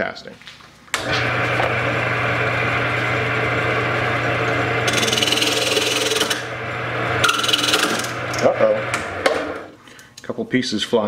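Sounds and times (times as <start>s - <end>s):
lathe motor hum: 1.0s - 9.7s.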